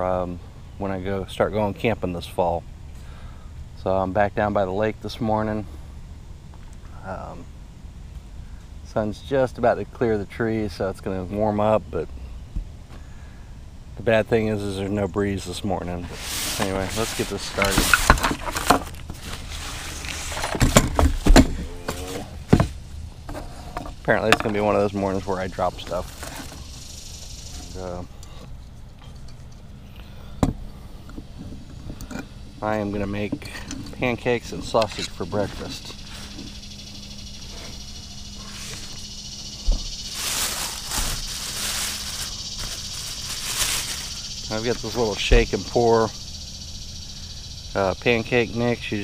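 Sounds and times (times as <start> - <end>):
insects chirring: 0.0 - 49.0
rustling handling noise: 15.5 - 27.9, 37.2 - 45.9.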